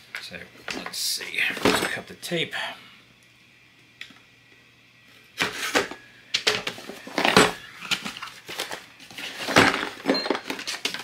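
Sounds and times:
cardboard rustling and crackling: 6.7s - 11.0s.

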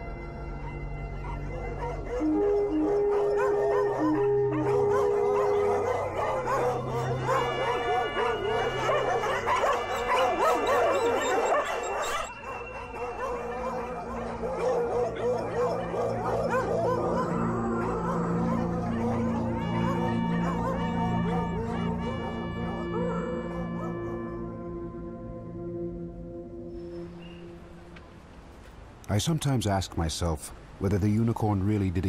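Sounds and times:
music: 0.0s - 28.1s
dogs baying and howling: 0.5s - 25.2s.

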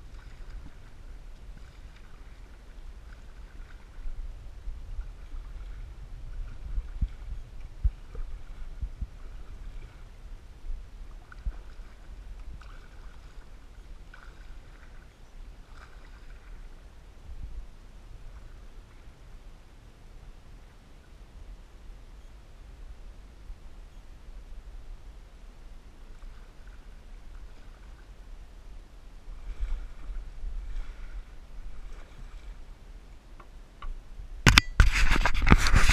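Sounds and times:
steady low rumble: 0.0s - 12.6s
paddle splashes: 0.0s - 16.9s, 25.9s - 33.8s
faint water noise: 0.0s - 35.9s.

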